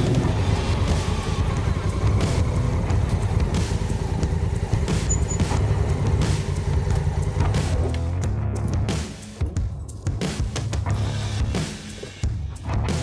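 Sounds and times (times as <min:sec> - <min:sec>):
motorcycle engine at low revs: 0:00.0 - 0:09.6.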